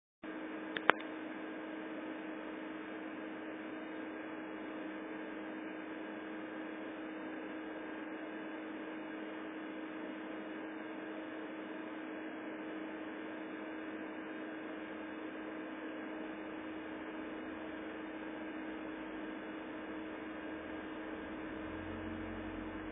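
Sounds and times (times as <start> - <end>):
electrical hum and hiss: 0.3 - 22.9
sharp clicks: 0.8 - 1.1.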